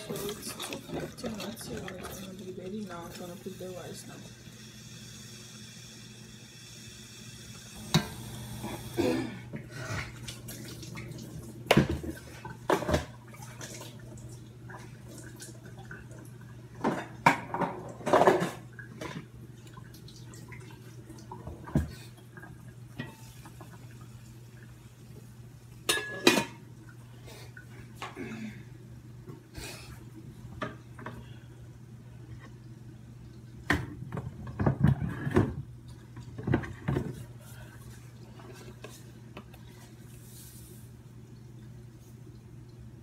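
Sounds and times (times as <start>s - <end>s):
metal pots and lids clanking: 25.9s - 26.6s.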